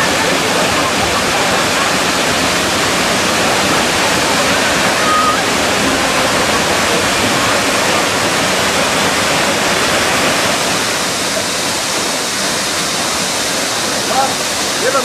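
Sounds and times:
waterfall roaring: 0.0 - 15.0.

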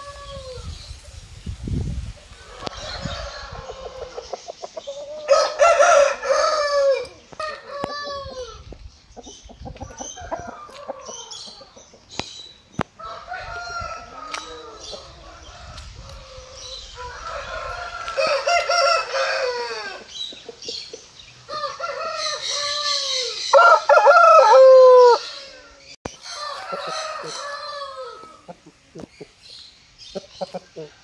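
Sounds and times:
roosters crowing: 0.0 - 0.9, 2.3 - 8.7, 9.8 - 11.8, 12.9 - 20.2, 21.4 - 28.7.

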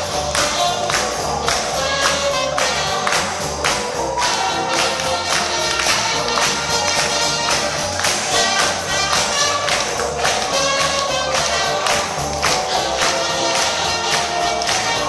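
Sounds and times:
live band playing dance music: 0.0 - 15.0.

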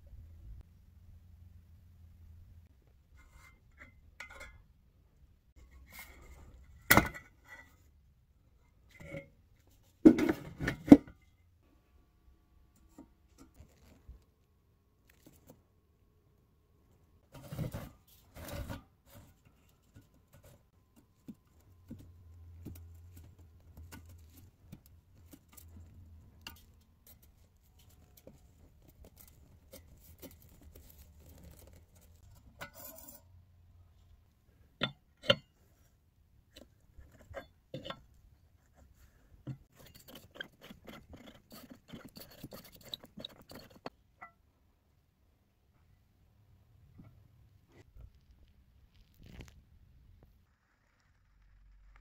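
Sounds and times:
metal clicks and scrapes: 17.3 - 33.3, 39.4 - 44.0.

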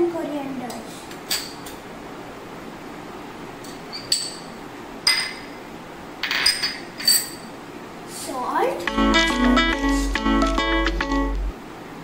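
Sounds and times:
metal spoon clinking on glass bowls: 3.7 - 5.5, 6.2 - 7.5.

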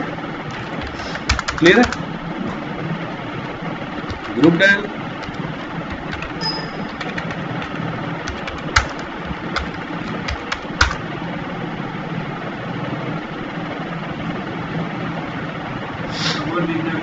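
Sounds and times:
steady low hum: 0.0 - 17.0
keyboard keys clicking: 0.5 - 2.7, 3.4 - 11.1.

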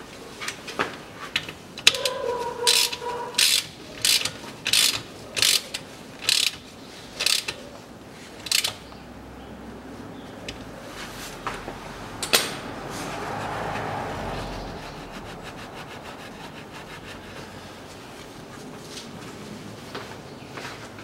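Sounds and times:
ratchet wrench clicking: 1.8 - 6.6, 7.2 - 7.6, 8.4 - 8.8.

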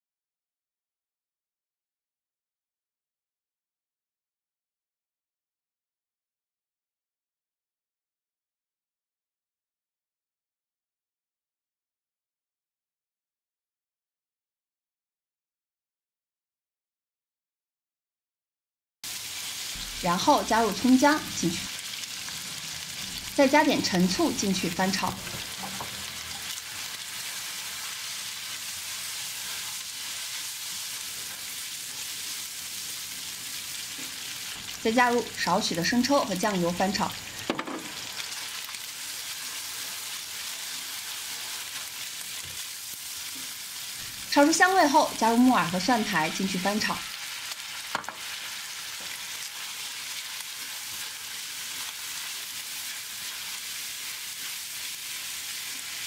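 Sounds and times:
meat sizzling in oil in wok: 19.0 - 56.0
spatula stir-frying: 19.0 - 56.0.

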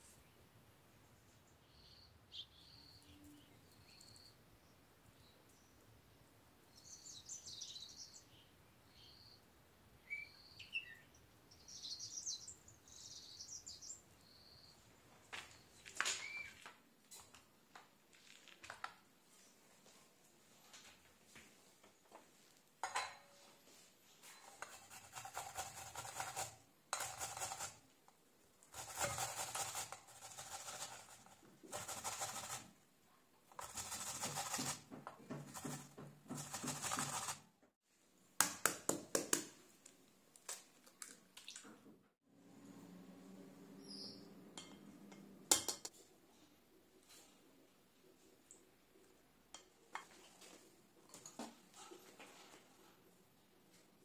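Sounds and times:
apple scraping on metal grater: 24.5 - 27.8, 28.7 - 32.7, 33.5 - 37.4.

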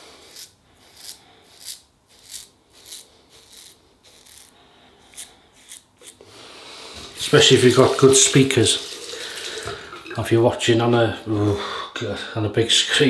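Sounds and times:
razor scraping stubble: 0.0 - 6.3.

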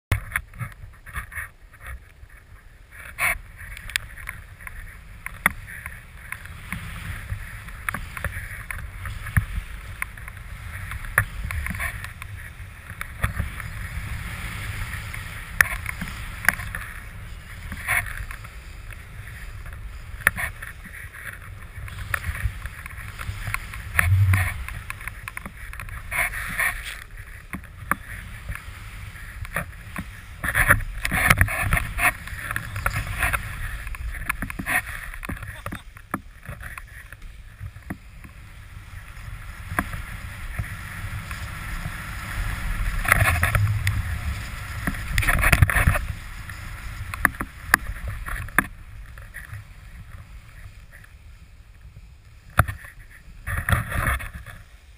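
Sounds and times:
wind buffeting microphone: 0.1 - 54.5
snowboard spraying powder snow: 37.4 - 48.2.

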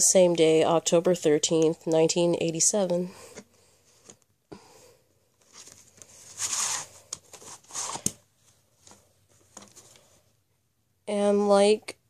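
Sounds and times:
plastic case scraping and rustling: 5.4 - 8.2.

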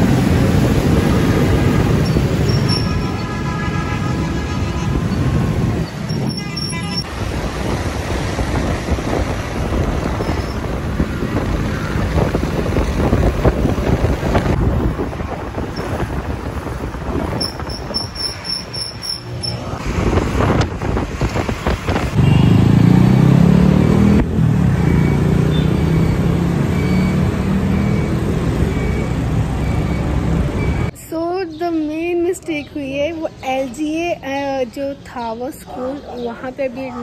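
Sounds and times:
vehicle engine and road noise: 0.0 - 37.0.

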